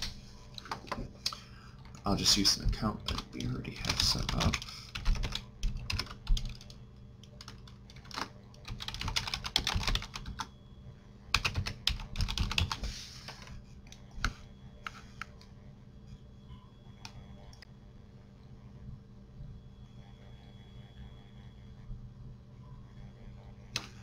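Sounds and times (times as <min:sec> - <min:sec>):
computer keyboard typing: 0:03.0 - 0:10.5, 0:11.3 - 0:13.4.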